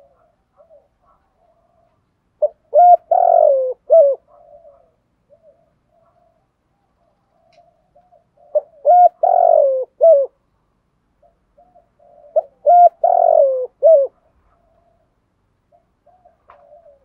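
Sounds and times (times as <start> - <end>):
faint soft coos: 0.0 - 10.4, 11.2 - 17.0
dove cooing: 0.0 - 10.5, 11.1 - 17.0.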